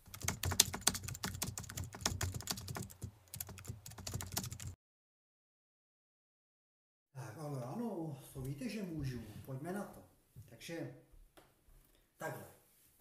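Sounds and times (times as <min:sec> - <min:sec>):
keyboard typing clicks: 0:00.1 - 0:04.7.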